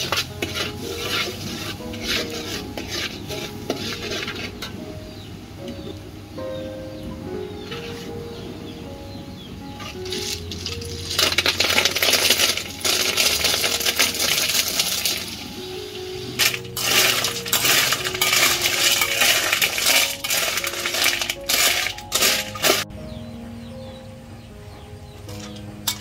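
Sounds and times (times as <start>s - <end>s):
metal spatula scraping shells in pan: 0.0s - 5.2s, 9.8s - 15.4s, 16.2s - 22.9s, 25.3s - 26.0s
shells clattering on metal wok: 16.4s - 22.8s.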